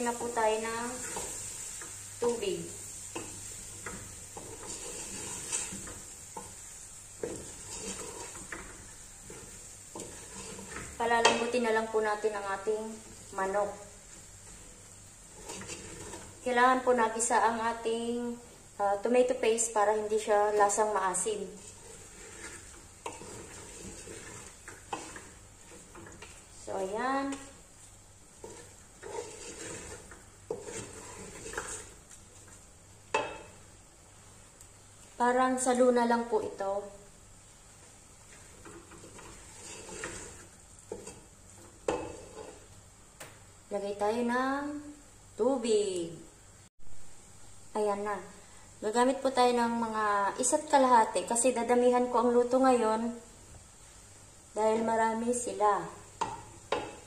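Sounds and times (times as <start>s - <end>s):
spoon stirring in pot: 0.0s - 16.5s, 20.5s - 33.8s, 37.8s - 42.9s, 56.1s - 57.0s
faint sizzle: 0.0s - 57.0s
tomato paste frying: 0.0s - 57.0s.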